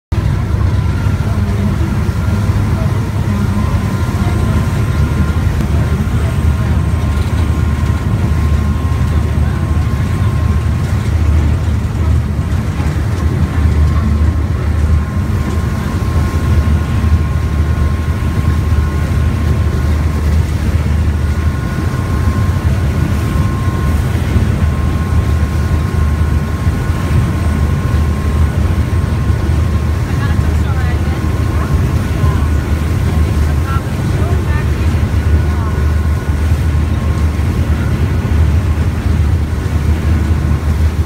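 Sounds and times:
boat engine rumble: 0.1s - 41.0s
rushing boat wake: 0.1s - 41.0s
faint steady whine: 0.2s - 41.0s.

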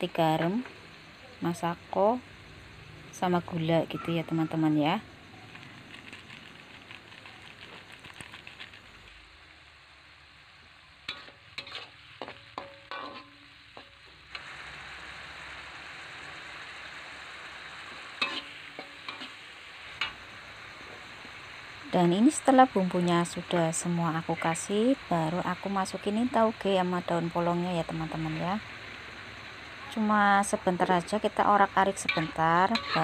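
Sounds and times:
food sizzling in a wok: 0.0s - 33.0s
spatula scraping a wok: 11.0s - 14.8s, 17.2s - 21.2s, 31.8s - 33.0s.

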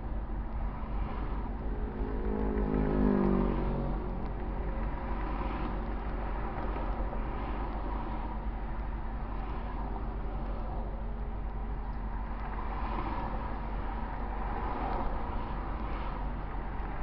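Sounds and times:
freeway traffic noise: 0.0s - 17.0s
vehicle passing close: 1.8s - 4.2s.

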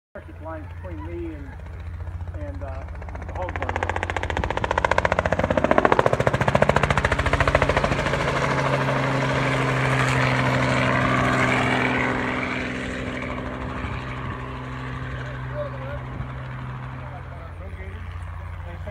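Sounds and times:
helicopter engine drone: 0.2s - 18.9s
helicopter rotor pulsing: 0.2s - 18.9s.

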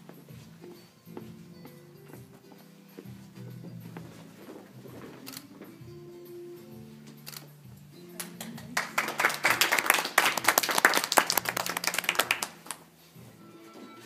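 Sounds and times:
faint background music: 0.0s - 14.0s
group clapping: 8.2s - 12.9s.

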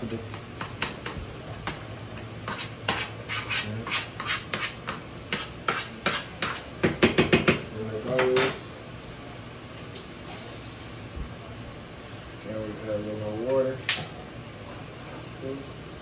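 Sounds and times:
utensil mashing potatoes in saucepan: 0.1s - 7.5s.

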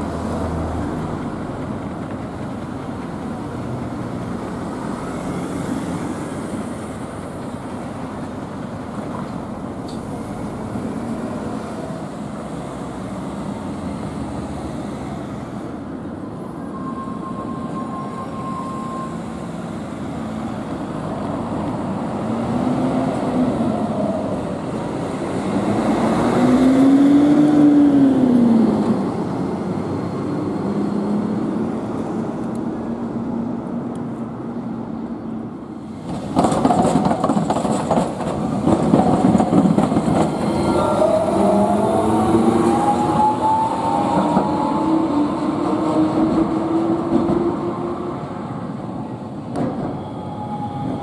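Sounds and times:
street traffic noise: 0.0s - 51.0s
tram electric motor whine: 39.1s - 51.0s.

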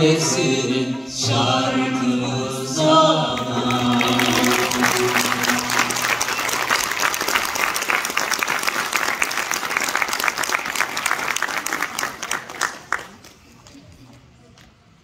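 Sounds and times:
held sung note: 1.8s - 6.8s
audience applauding: 3.4s - 13.5s.

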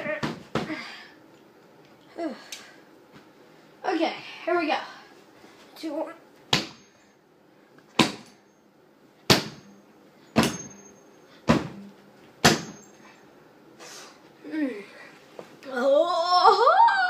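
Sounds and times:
high metallic ring: 9.5s - 13.3s.

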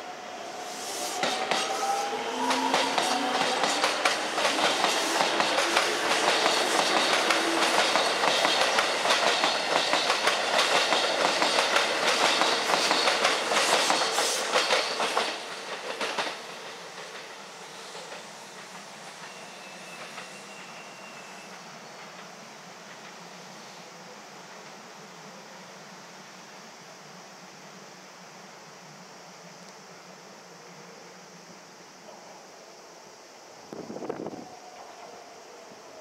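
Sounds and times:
train wheels clattering: 1.2s - 23.2s.

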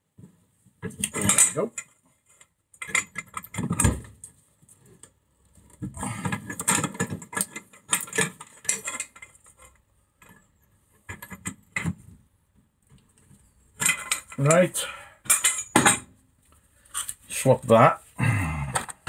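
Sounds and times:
metal clinking and clicking: 13.8s - 14.6s, 15.3s - 16.0s.

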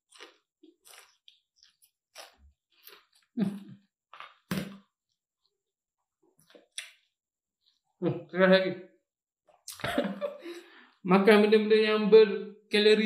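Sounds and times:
chewing and crunching: 0.0s - 4.5s.

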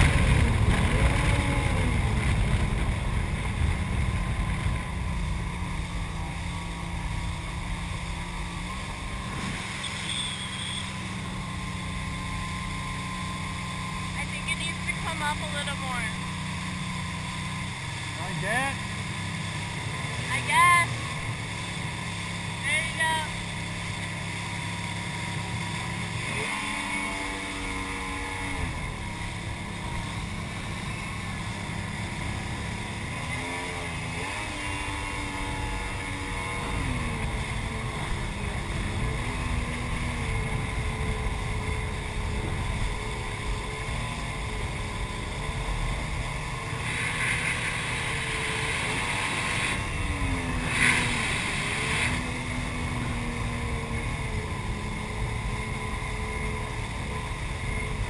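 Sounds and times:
rush of water and wind: 0.0s - 5.1s, 46.2s - 54.0s
jet ski engine: 0.0s - 58.0s.

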